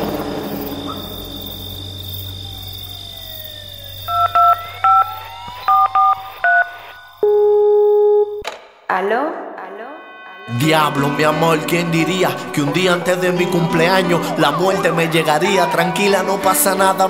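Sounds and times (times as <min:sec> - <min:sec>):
steady phone tone: 0:03.8 - 0:08.4
phone keypad dialing tones: 0:04.1 - 0:08.4.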